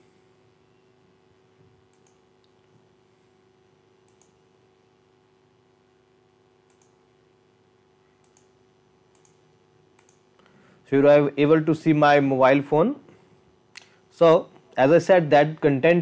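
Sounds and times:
low steady hum: 0:00.0 - 0:16.0
computer mouse clicks: 0:01.9 - 0:02.7, 0:04.0 - 0:04.4, 0:06.7 - 0:07.0, 0:08.2 - 0:09.4, 0:10.0 - 0:10.2.

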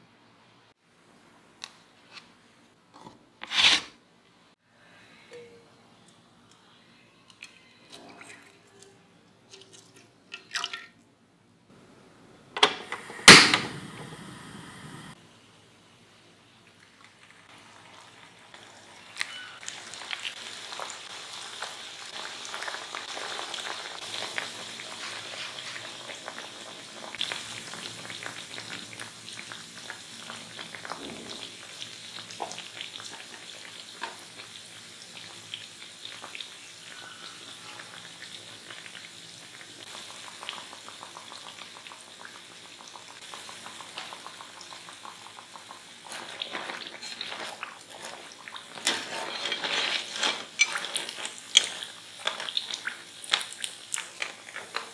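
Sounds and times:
potatoes deep-frying in oil: 0:16.9 - 0:54.9.

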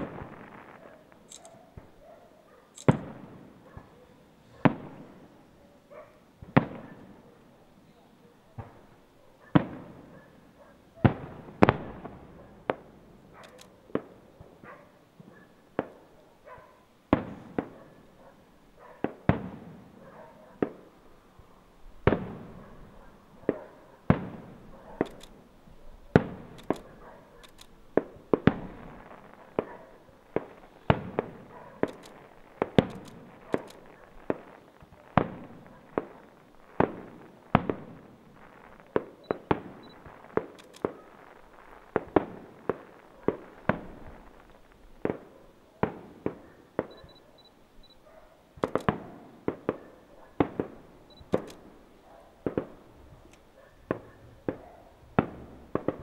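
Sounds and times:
firework shells bursting: 0:00.0 - 0:02.0, 0:02.8 - 0:03.4, 0:26.1 - 0:47.1, 0:48.6 - 0:49.8, 0:50.4 - 0:51.8.

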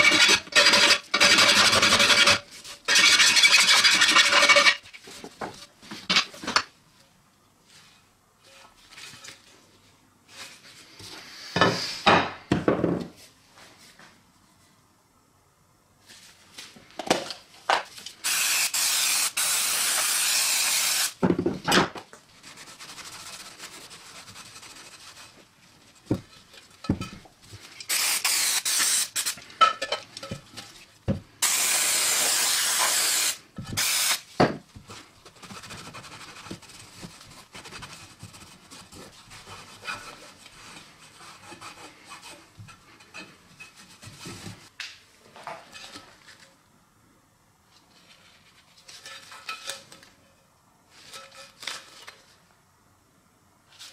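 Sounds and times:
aerosol can spraying: 0:18.2 - 0:21.2, 0:27.9 - 0:29.4, 0:31.4 - 0:34.2.

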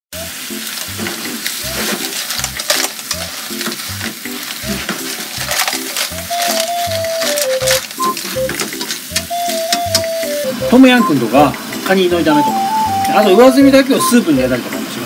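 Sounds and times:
clams sizzling in a pan: 0:00.2 - 0:15.0
background music with steady beat: 0:03.4 - 0:15.0.

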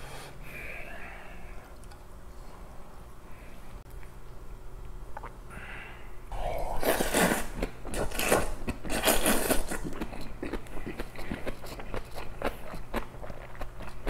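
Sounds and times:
noodles being slurped: 0:06.4 - 0:10.3.

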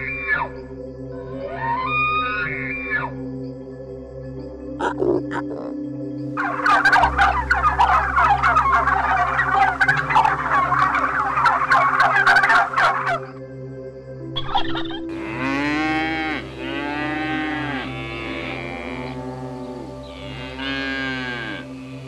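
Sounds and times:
turkeys gobbling: 0:04.8 - 0:05.7, 0:06.4 - 0:13.4, 0:14.4 - 0:21.6
cow mooing: 0:15.1 - 0:22.0.

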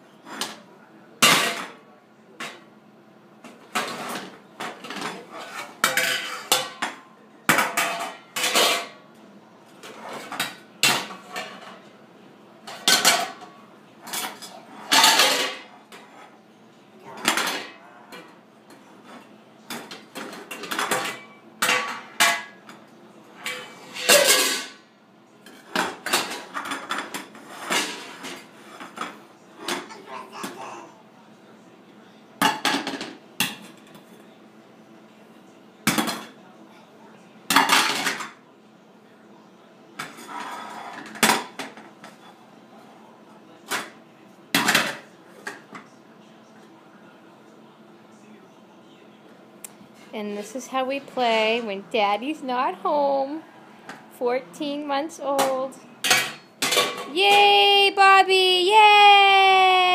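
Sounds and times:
frying pans clanging on tile floor: 0:03.8 - 0:09.0, 0:12.7 - 0:15.7, 0:23.4 - 0:24.8, 0:55.4 - 0:57.2.

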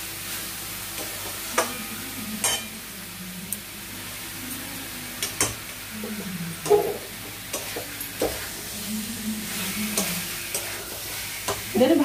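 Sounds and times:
chicken sizzling in pan: 0:00.0 - 0:12.0
metal spatula scraping pan: 0:09.5 - 0:11.8.

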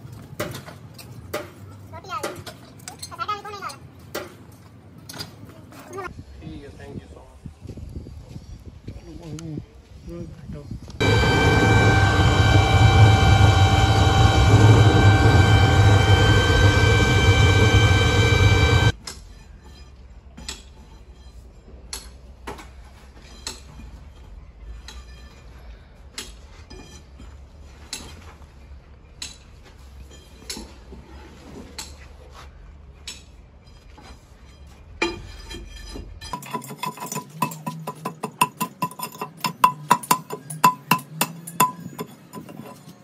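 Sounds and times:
low steady hum: 0:11.0 - 0:19.0.

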